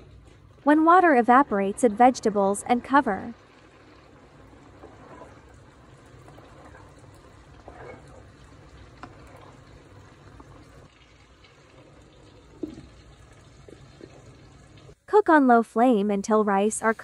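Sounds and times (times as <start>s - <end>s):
water bubbling and trickling: 2.9s - 15.0s.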